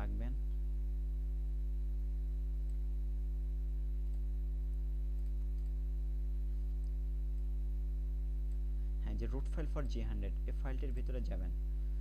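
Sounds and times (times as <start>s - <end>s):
electrical mains hum: 0.0s - 12.0s
computer mouse clicks: 5.1s - 5.8s.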